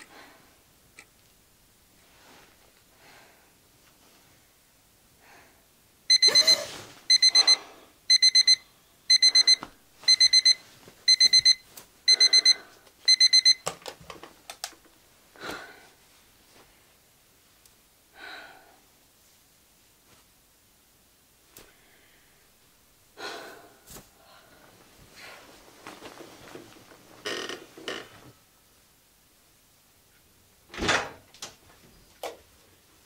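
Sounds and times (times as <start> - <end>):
electronic alarm beeping: 6.1 - 13.6.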